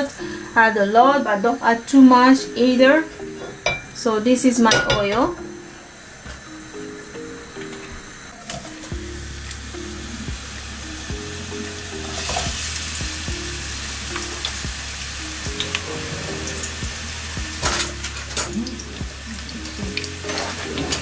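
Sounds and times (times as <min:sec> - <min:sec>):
onion sizzling in hot oil: 0:08.3 - 0:21.0.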